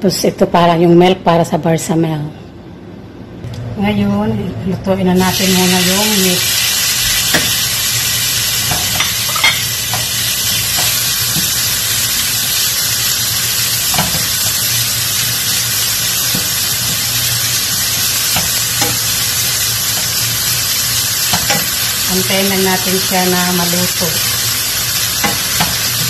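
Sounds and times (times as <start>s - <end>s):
meat sizzling in frying pan: 5.2s - 26.0s
spatula knocking on pan: 13.9s - 14.3s, 21.3s - 21.7s.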